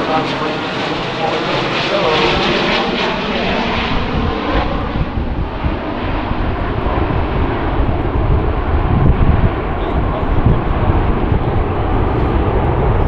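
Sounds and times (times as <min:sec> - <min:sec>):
jet airliner flying overhead: 0:00.0 - 0:13.0.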